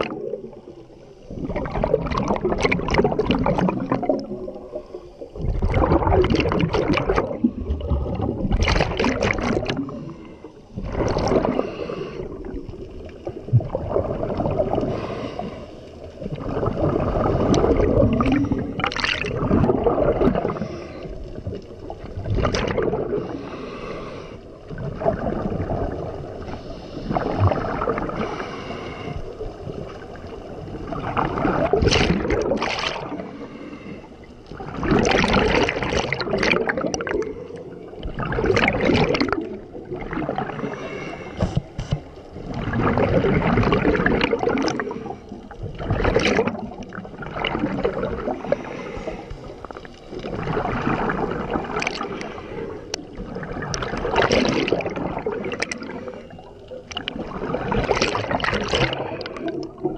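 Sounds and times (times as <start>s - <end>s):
scuba regulator exhaust bubbles: 0.0s - 59.9s.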